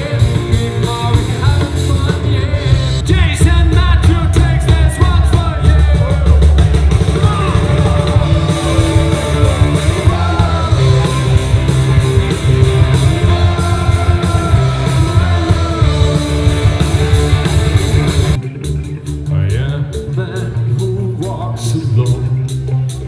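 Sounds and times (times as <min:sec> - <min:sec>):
person singing: 0:00.0 - 0:06.5, 0:07.1 - 0:18.0
bass guitar: 0:00.0 - 0:23.0
drum kit: 0:00.0 - 0:23.0
electric guitars: 0:00.0 - 0:23.0.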